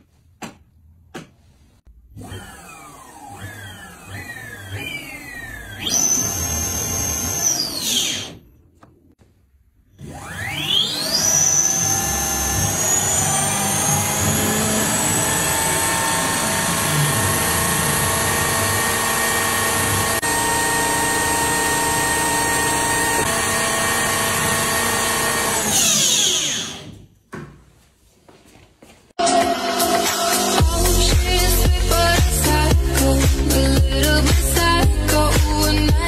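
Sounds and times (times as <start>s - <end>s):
electric motor whine: 10.0s - 26.8s.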